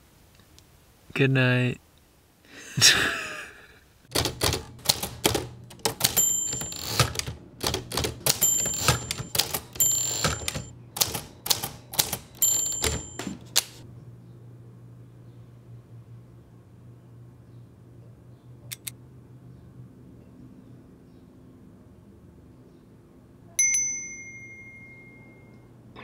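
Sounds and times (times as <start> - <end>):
typewriter key strikes: 4.1 - 13.8
typewriter bell rings: 4.2 - 13.8, 23.6 - 25.7.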